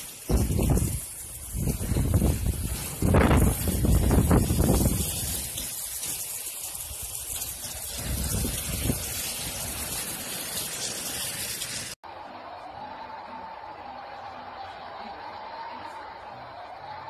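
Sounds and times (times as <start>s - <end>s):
wind and rain rushing: 0.0s - 5.8s, 6.6s - 10.4s.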